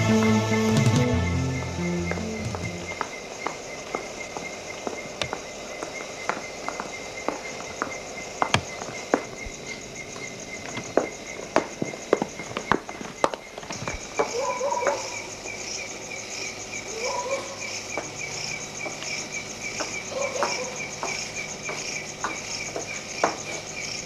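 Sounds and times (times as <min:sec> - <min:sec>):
footsteps tapping: 0:00.0 - 0:15.6, 0:18.8 - 0:23.9
crickets chirping: 0:00.0 - 0:24.0.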